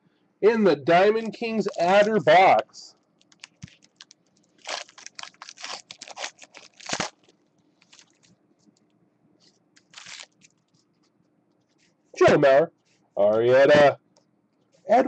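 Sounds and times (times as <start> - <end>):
wrapper crinkling and tearing: 1.6 - 2.1, 3.2 - 8.3, 9.8 - 10.9.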